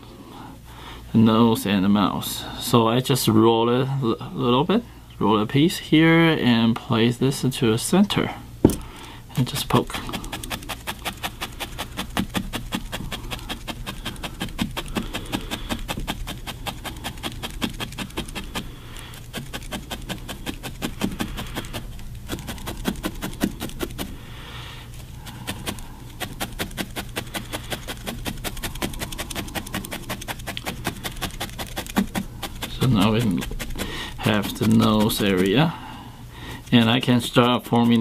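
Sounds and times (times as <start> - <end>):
felting needle stabbing wool: 9.7 - 24.2, 24.9 - 35.6, 36.6 - 38.0.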